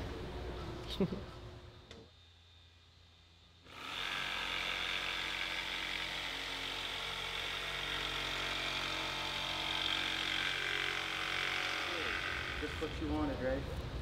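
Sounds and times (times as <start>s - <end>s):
jigsaw cutting plywood: 3.7s - 12.8s.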